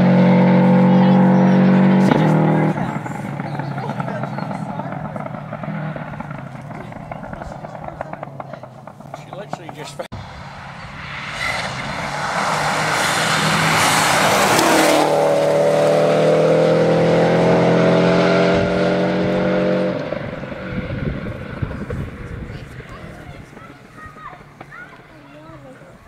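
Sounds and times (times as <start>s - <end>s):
rally car engine passing: 0.0s - 26.0s
tyres on gravel: 0.9s - 16.3s, 21.2s - 26.0s.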